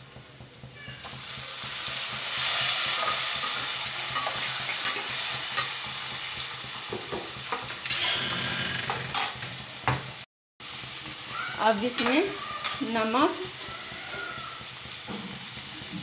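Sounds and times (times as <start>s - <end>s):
frying sizzle: 0.0s - 16.0s
metal spatula clicking on pan: 11.9s - 13.2s.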